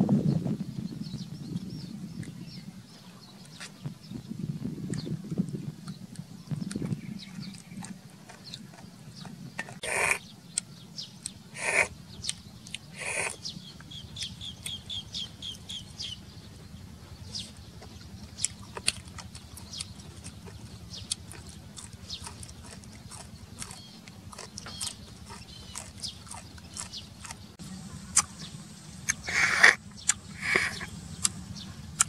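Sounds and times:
chewing: 3.4 - 4.0, 4.9 - 32.0
loud slurps: 5.9 - 10.3, 11.0 - 14.8, 28.1 - 32.0.

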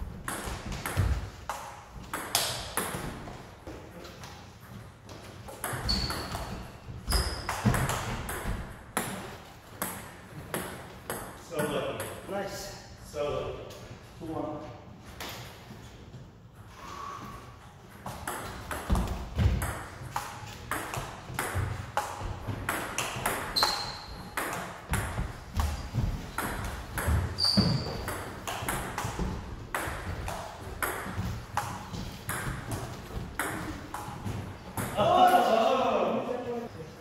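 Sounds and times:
brief high squeaks: 5.8 - 7.5, 23.6 - 24.3, 27.4 - 28.0.

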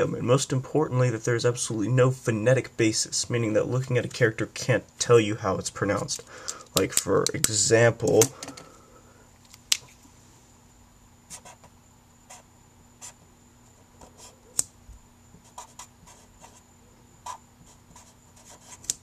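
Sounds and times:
marker scratching on surface: 11.3 - 11.7, 15.4 - 16.6, 17.2 - 19.0.

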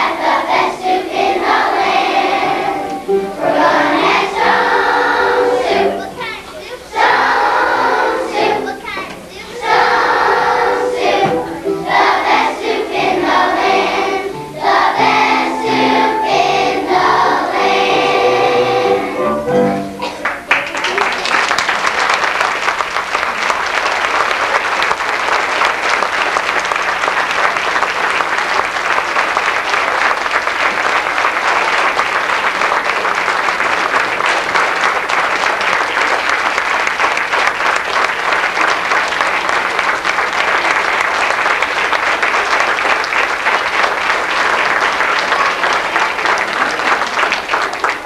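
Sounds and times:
audience applauding: 20.0 - 48.0.

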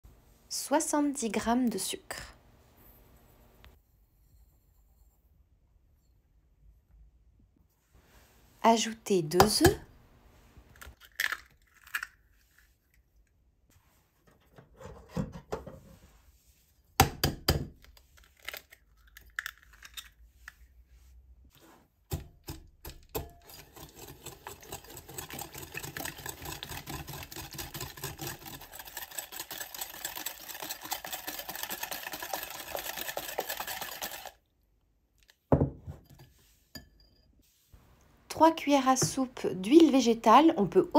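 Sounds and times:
eggshells cracking on glass bowl: 10.8 - 12.3, 18.2 - 20.2
wire whisk rattling in glass bowl: 23.4 - 34.4.

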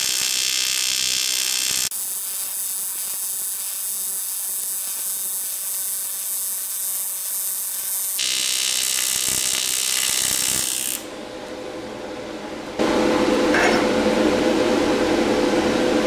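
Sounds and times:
welding arc buzzing: 0.0 - 11.1.

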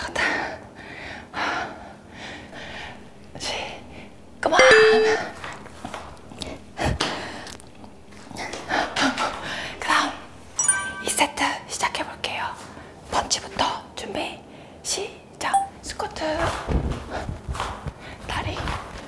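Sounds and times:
people breathing hard: 0.6 - 3.1, 8.4 - 9.8
short steady tone: 10.6 - 11.3.

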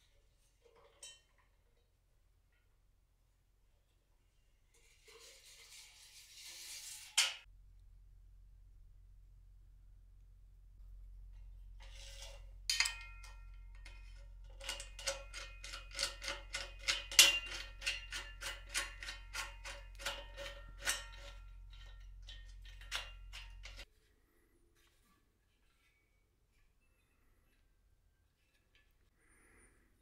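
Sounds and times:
steel clicking and ringing: 12.7 - 23.9.

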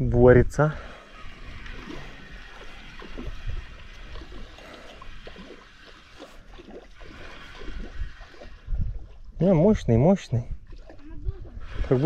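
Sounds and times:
shallow water gurgling and sloshing: 0.0 - 12.0.

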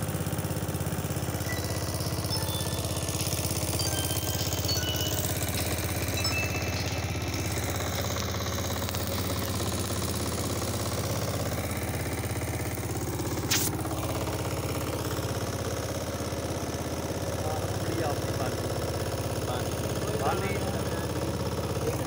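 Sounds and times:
boat engine running: 0.0 - 22.0
sharp click: 13.5 - 13.8.

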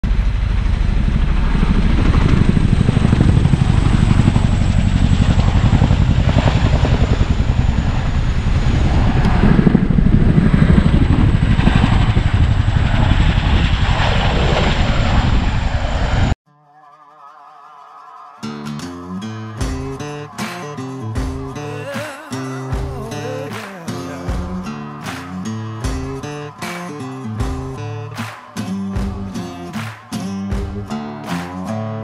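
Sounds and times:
helicopter rotor chopping: 0.0 - 16.4, 19.6 - 31.8.

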